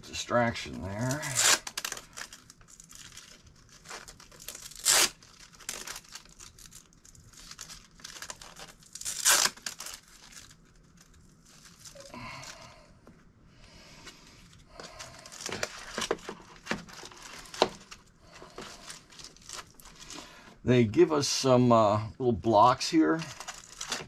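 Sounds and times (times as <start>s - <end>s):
packaging ripping: 0.9s - 12.7s, 14.8s - 20.2s, 23.2s - 24.0s
packaging crinkling: 0.9s - 12.8s, 14.1s - 20.4s, 23.2s - 24.0s.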